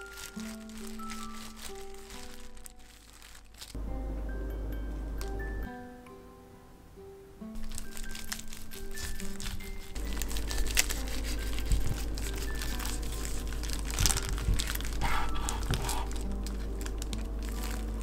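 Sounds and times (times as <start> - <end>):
knife crunching through seaweed roll: 7.6 - 18.0.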